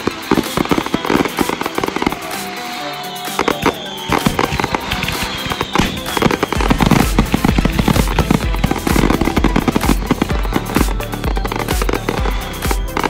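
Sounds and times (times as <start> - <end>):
fireworks popping and crackling: 0.0 - 13.0
music: 0.0 - 13.0
heavy bass beat: 3.3 - 13.0.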